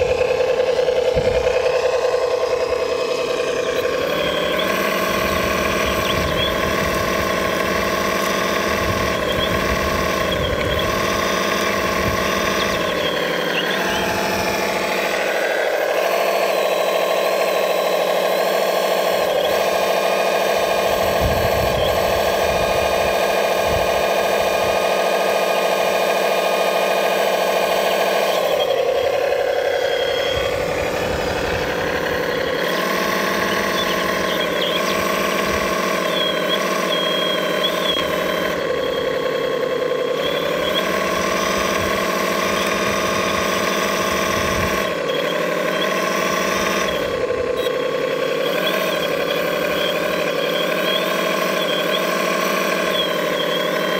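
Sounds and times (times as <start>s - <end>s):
low rumbles: 0.0s - 16.0s, 20.4s - 24.8s, 28.4s - 45.4s
electric motors whining: 0.0s - 53.9s.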